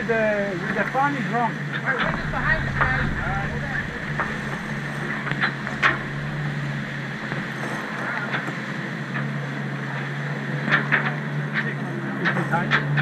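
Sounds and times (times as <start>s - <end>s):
wind rushing: 2.0s - 7.7s
water rushing: 2.0s - 8.0s.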